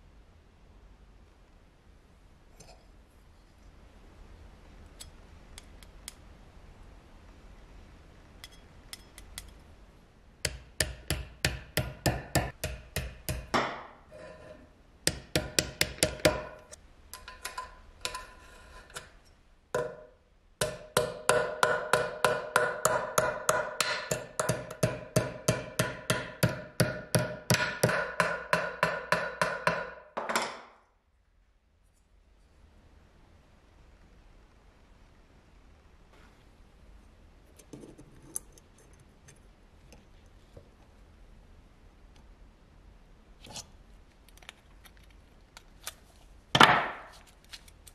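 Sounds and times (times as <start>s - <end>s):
hammer tapping on metal: 10.4s - 14.0s, 15.1s - 18.2s, 19.8s - 30.6s.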